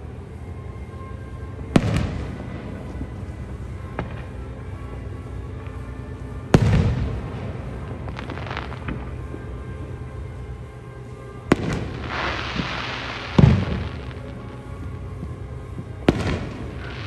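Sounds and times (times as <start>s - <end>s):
firework crackling: 6.5s - 17.0s
firework bangs: 11.5s - 17.0s.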